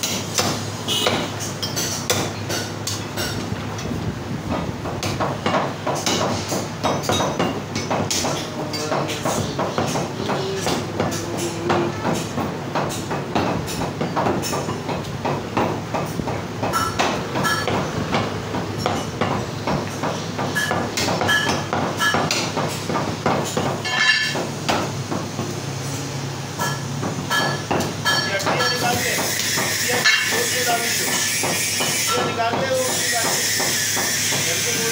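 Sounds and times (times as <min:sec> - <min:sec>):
cleavers chopping on wooden blocks: 0:00.0 - 0:01.3, 0:04.5 - 0:25.5, 0:31.0 - 0:34.6.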